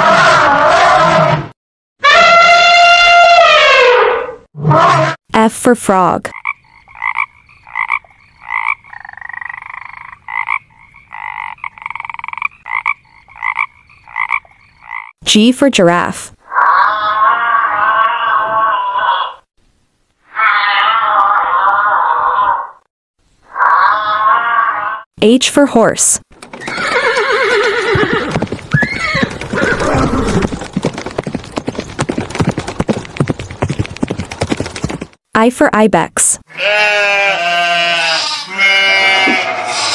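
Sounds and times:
frog croaking and trilling: 6.3 - 15.1
hooves clip-clopping: 26.3 - 35.2
horse whinnying: 26.5 - 30.6.

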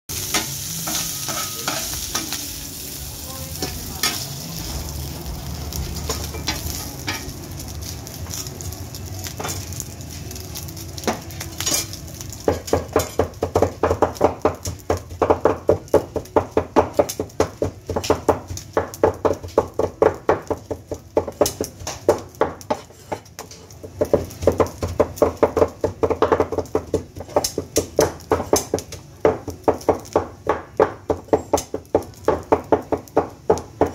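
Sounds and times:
meat sizzling on a griddle: 0.1 - 33.9
spatula scraping: 22.6 - 23.6.

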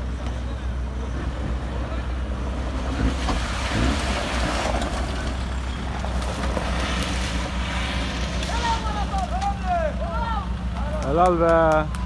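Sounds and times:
distant engine working hard: 0.0 - 12.0
steady low rumble: 0.0 - 12.0.

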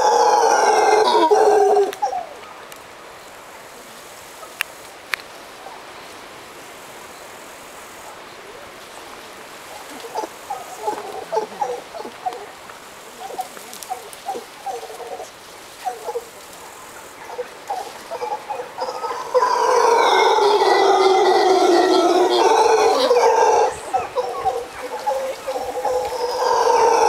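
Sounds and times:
monkeys grunting: 0.0 - 2.3, 9.8 - 16.5, 17.1 - 27.0
monkey howling: 0.0 - 2.4, 9.8 - 12.6, 13.2 - 16.3, 17.2 - 27.0.

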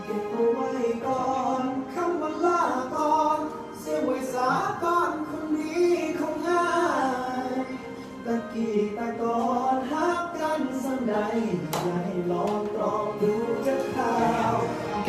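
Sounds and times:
backing track music: 0.0 - 15.0
person singing: 0.0 - 15.0.

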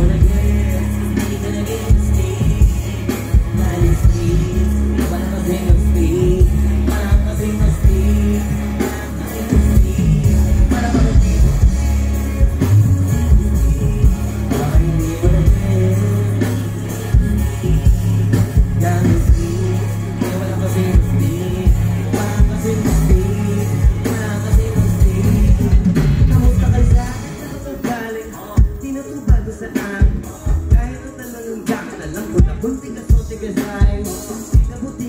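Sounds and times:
hip-hop backing track: 0.0 - 35.0
rapping into a microphone: 0.0 - 35.0.

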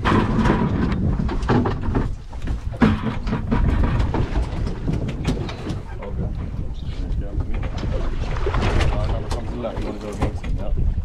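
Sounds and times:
clicks and knocks: 0.0 - 5.9
water slapping against boat: 0.0 - 11.0
wind on microphone: 0.0 - 11.0.

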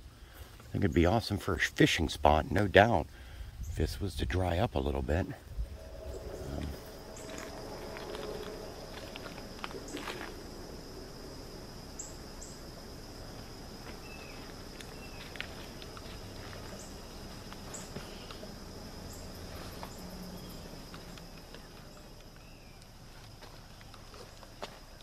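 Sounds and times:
crickets trilling: 0.0 - 25.0
footsteps: 5.6 - 11.0.

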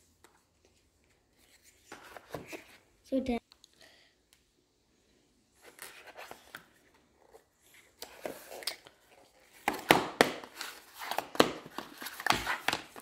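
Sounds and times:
cardboard rustling: 5.6 - 13.0.

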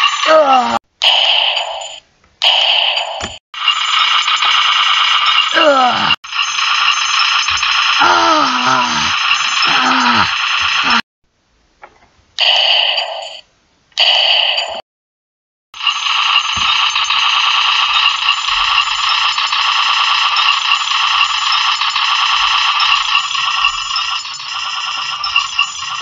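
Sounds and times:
machine-gun sound effect: 1.0 - 5.6, 6.3 - 11.0, 15.8 - 26.0.

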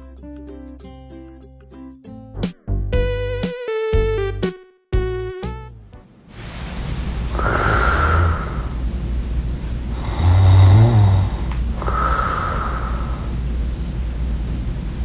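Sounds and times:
man snoring loudly: 7.3 - 8.8, 9.9 - 13.4.

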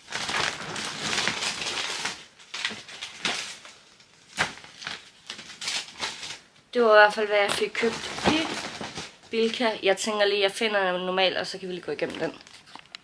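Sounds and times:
packaging and bags rustling: 0.0 - 6.4, 7.0 - 9.7.

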